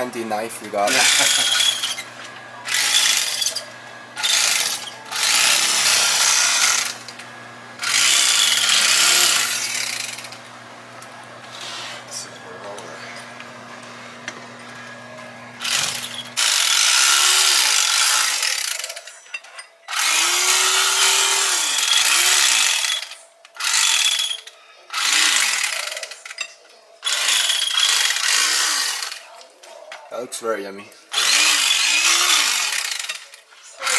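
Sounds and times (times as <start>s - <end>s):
electric carving knife slicing: 0.8s - 12.1s, 15.6s - 19.0s, 19.9s - 26.0s, 27.0s - 29.3s, 31.1s - 33.1s.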